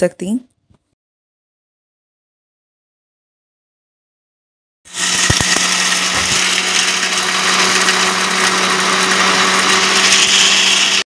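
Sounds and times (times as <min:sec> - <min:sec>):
mixer grinder motor running: 0:04.9 - 0:11.0.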